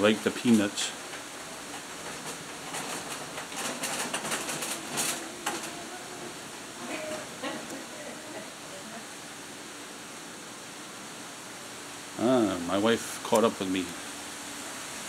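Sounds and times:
steady hiss: 0.0 - 15.0
soft clicks and rustles: 0.4 - 7.8
faint voices: 4.4 - 9.2.

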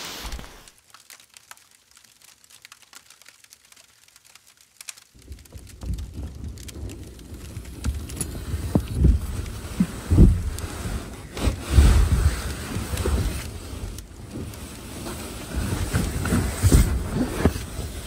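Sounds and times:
wood fire crackling: 0.0 - 18.0
thumps and rustles in tent: 7.8 - 18.0.

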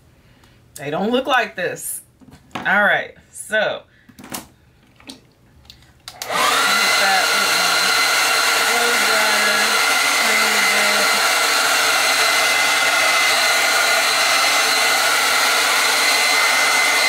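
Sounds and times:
hair dryer running: 6.0 - 17.0.

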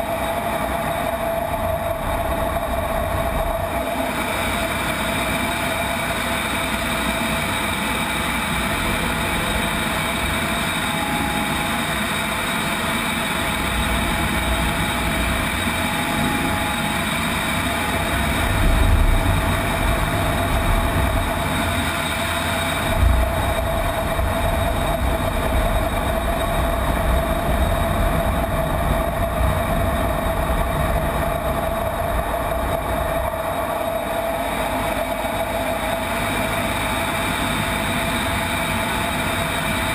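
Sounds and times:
jet engine and rushing air roar: 0.0 - 39.9
whining tones: 0.0 - 39.9
deep low rumble: 18.0 - 21.7.

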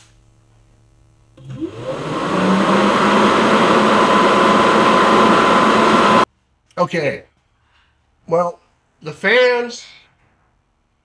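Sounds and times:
fan air rush with motor hum: 0.0 - 6.3
fan motor whine spinning up: 1.0 - 6.3.

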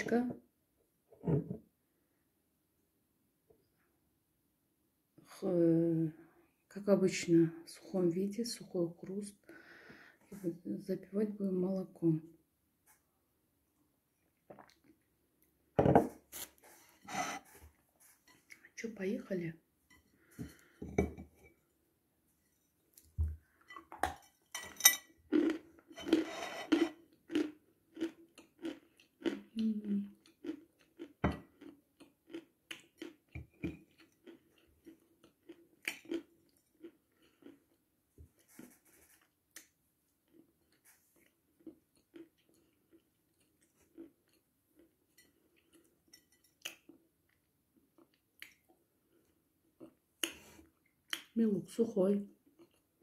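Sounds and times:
person chewing dry food: 25.1 - 51.3, 52.4 - 53.0.

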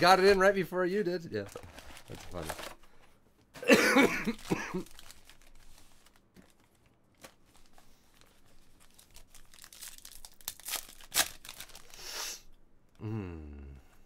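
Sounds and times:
foil wrapper crinkling: 1.5 - 2.8, 4.2 - 12.1
foil wrapper tearing: 4.3 - 12.4.

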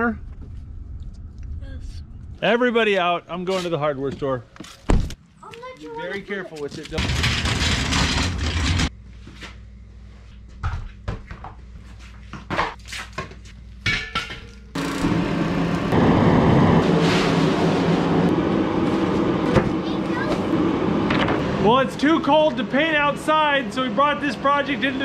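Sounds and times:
heater burner and fan rushing: 7.0 - 9.0, 14.7 - 25.0.

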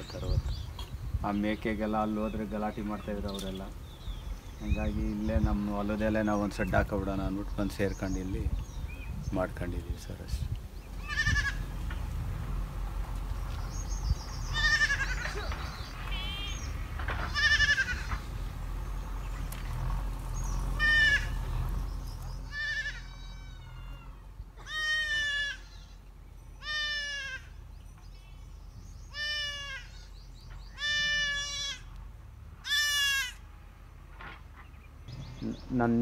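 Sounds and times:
goat bleating: 11.0 - 11.7, 14.5 - 16.7, 17.3 - 18.2, 20.8 - 21.4, 22.5 - 27.6, 29.1 - 32.0, 32.6 - 33.4.

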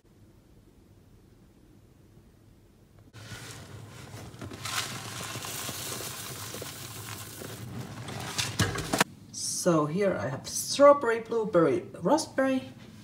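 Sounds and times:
oats pouring into water: 3.2 - 9.0.

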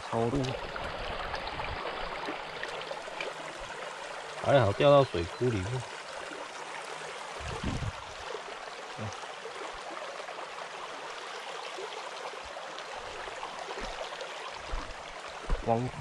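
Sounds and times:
stream flowing over pebbles: 0.0 - 16.0.

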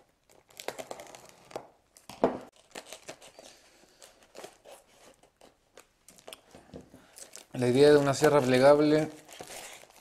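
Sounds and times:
plastic bag crinkling: 2.5 - 10.0.

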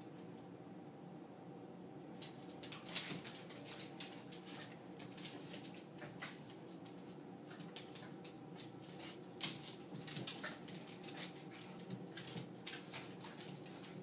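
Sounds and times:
dog claws clicking on wood floor: 2.2 - 14.0.

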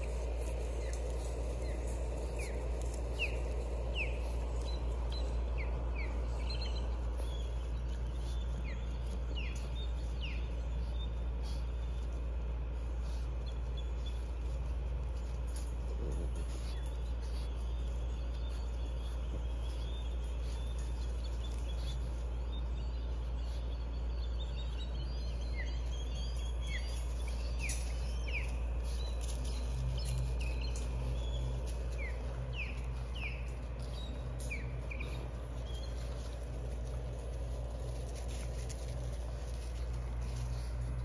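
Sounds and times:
bird chirping: 0.0 - 41.0
low background rumble: 0.0 - 41.0.

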